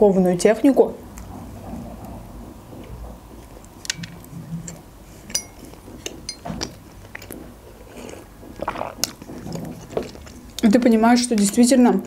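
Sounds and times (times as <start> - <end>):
light clinks: 3.9 - 7.3
chewing soft donut: 6.9 - 10.8
wet mouth clicks: 7.9 - 9.4.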